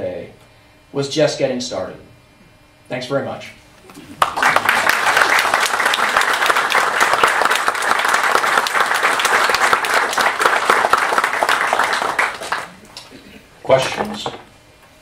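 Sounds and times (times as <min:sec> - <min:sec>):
audience applauding: 0:04.0 - 0:12.8.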